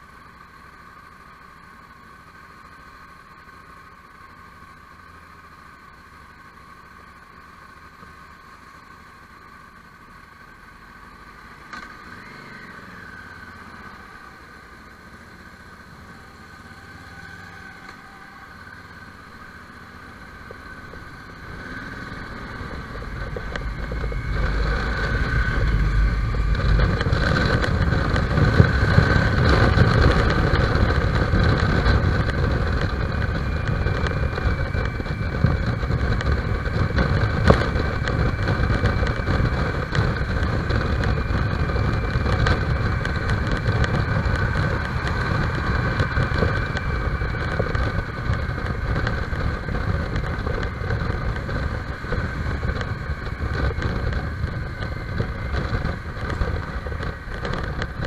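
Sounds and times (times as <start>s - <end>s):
motorcycle engine running: 0.0s - 58.0s
wind noise: 20.4s - 58.0s.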